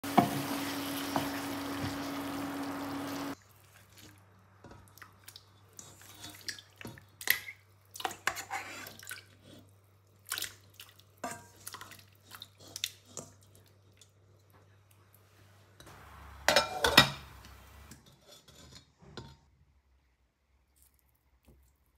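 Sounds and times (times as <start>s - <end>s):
meat sizzling in a frying pan: 0.0s - 3.4s.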